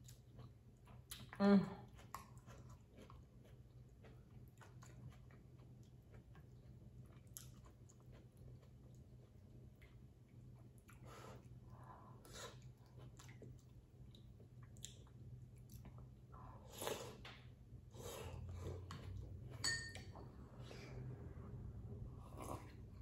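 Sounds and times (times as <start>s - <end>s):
slurping and chewing: 0.0s - 10.0s, 22.1s - 23.0s
spoon clink: 19.6s - 20.1s.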